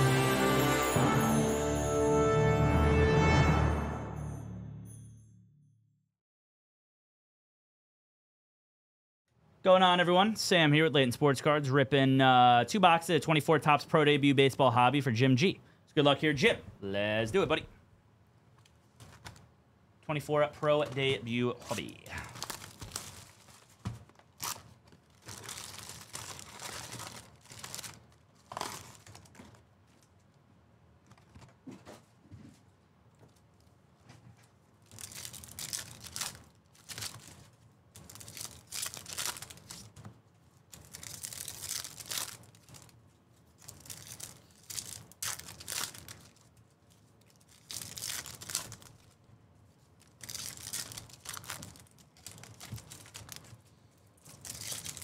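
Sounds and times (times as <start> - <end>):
foil packs tearing and crinkling: 21.7 - 29.6, 34.8 - 40.0, 40.7 - 49.2, 50.0 - 53.6, 54.2 - 55.0.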